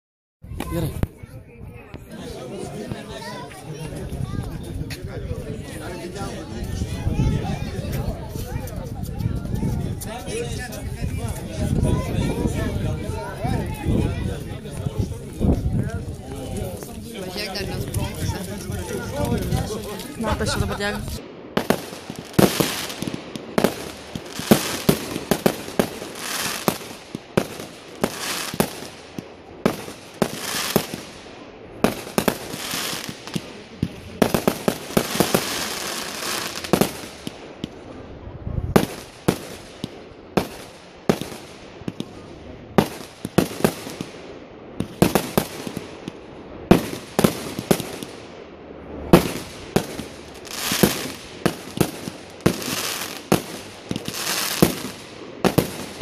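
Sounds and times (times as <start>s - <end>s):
firework crackle and hiss: 0.5s - 56.0s
firework bangs: 16.8s - 56.0s.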